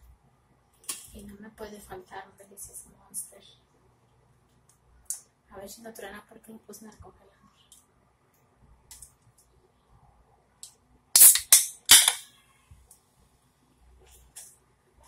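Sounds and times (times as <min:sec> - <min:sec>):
drink can cracked open: 0:11.2 - 0:12.2.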